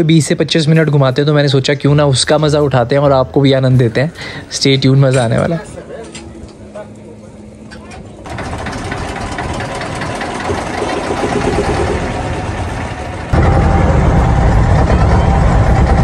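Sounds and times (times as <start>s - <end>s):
boat engine running: 5.6s - 16.0s.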